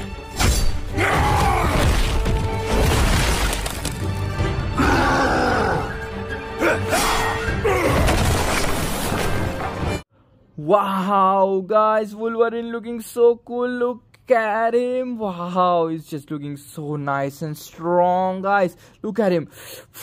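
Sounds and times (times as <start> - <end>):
crashing and shattering effects: 1.6 - 4.3, 7.9 - 10.0.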